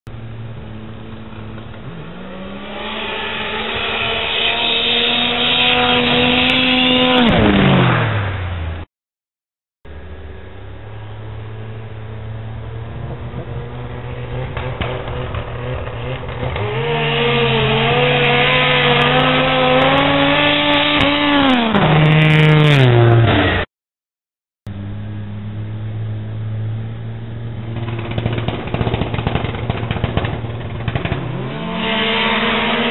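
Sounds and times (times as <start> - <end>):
snowmobile engine at full throttle: 10.2 - 23.3.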